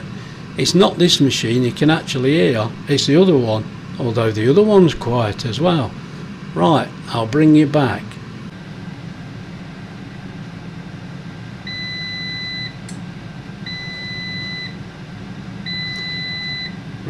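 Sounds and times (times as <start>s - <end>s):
air fryer fan hum: 0.0s - 17.0s
air fryer beeps: 11.6s - 13.0s, 13.6s - 14.8s, 15.6s - 16.9s.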